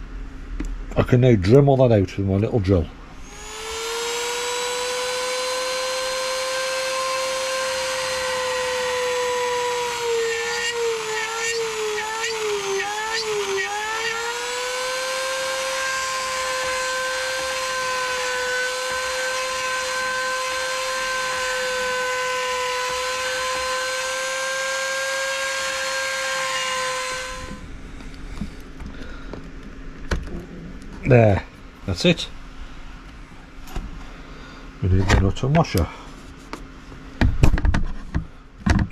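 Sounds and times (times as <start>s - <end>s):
rotary tool whining cutting plastic: 3.2s - 27.6s.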